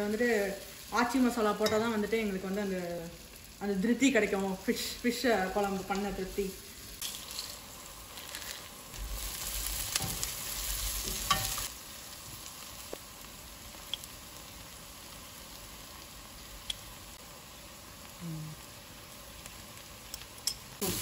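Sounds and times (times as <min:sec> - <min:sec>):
food sizzling in oil: 0:00.0 - 0:21.0
spoon stirring in pan: 0:07.0 - 0:11.7.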